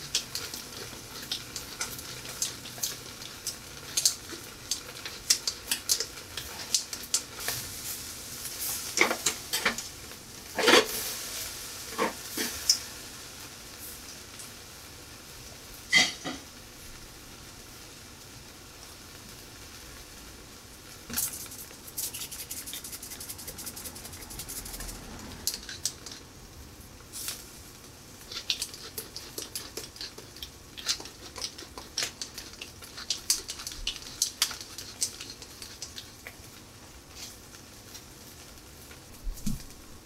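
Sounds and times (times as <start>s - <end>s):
steak sizzling on grill: 0.0s - 16.8s, 17.4s - 26.3s, 27.0s - 39.2s
fat crackling and popping: 20.9s - 26.3s, 27.3s - 40.0s.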